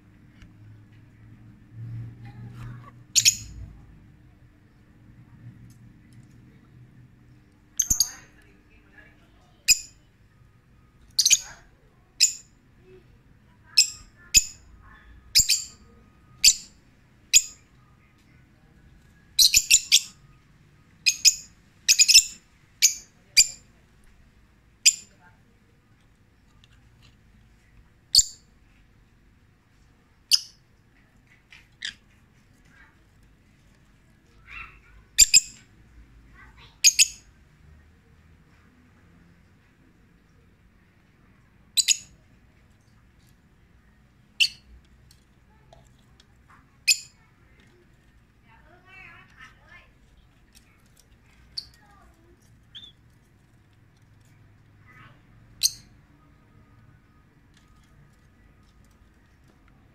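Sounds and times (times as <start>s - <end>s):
soft bird chattering: 2.7s - 3.6s, 7.8s - 8.5s, 11.0s - 12.5s, 13.7s - 17.7s, 19.4s - 20.2s, 21.0s - 23.7s, 28.1s - 28.5s, 34.3s - 35.6s, 36.4s - 37.3s, 41.8s - 42.2s, 44.3s - 44.8s, 51.3s - 53.2s, 54.9s - 56.0s
lovebirds chirping: 3.2s - 3.6s, 19.3s - 20.4s, 52.6s - 53.0s.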